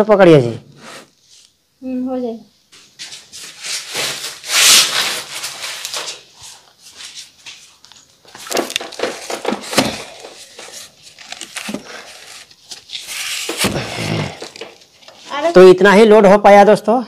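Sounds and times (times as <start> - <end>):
cardboard boxes scraping: 3.3 - 7.4, 8.4 - 15.5
boxes knocking and rubbing: 8.3 - 15.4.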